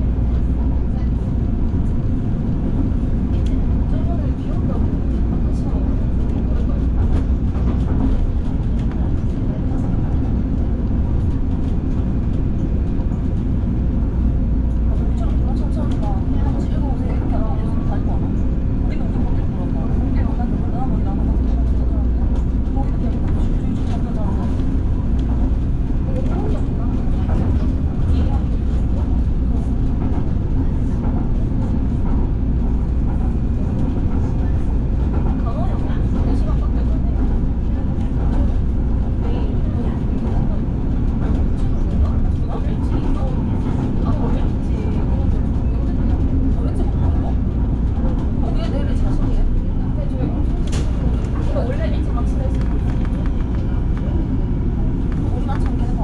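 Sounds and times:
train wheels rumbling: 0.0 - 56.0.

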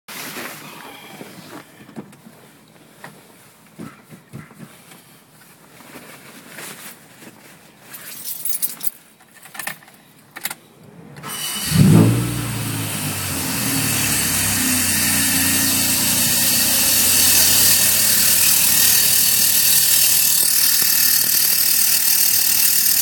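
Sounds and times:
keys rattling in ignition: 7.9 - 10.5
car engine starting and idling: 10.4 - 20.5.

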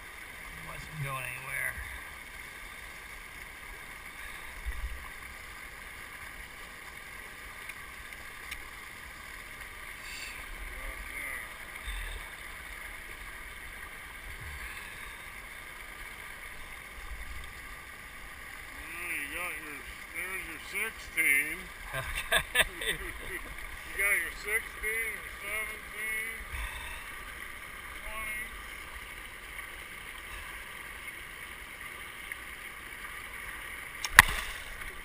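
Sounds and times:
water around a kayak: 0.0 - 35.0
light splashing: 33.9 - 35.0.

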